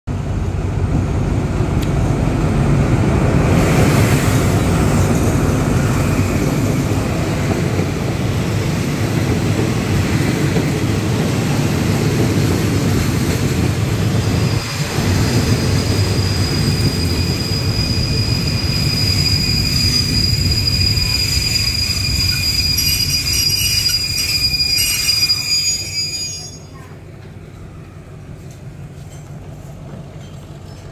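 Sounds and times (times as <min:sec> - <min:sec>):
diesel locomotive passing: 0:00.1 - 0:30.9
high squeal of wheels: 0:14.2 - 0:26.9.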